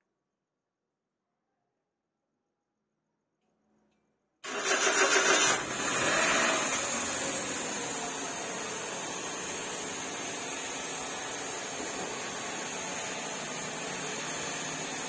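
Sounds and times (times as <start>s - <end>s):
car engine starting and idling: 4.4s - 15.0s
high engine whine: 5.5s - 15.0s.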